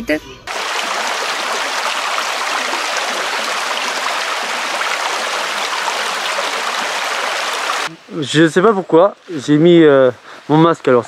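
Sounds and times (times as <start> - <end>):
stream babbling over stones: 0.5 - 7.9.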